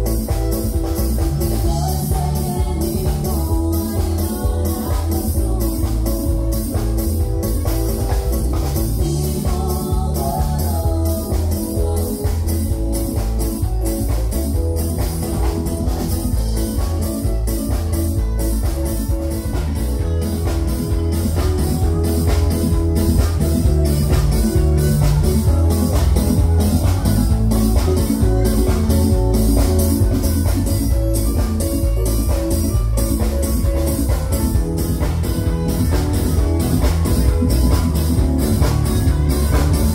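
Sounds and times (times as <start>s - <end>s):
drum kit beat: 0.0s - 39.9s
electric bass guitar: 0.0s - 39.9s.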